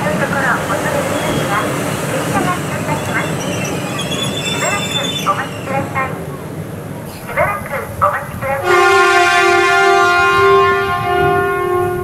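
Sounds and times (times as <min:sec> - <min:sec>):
train horn long note: 0:08.6 - 0:12.0.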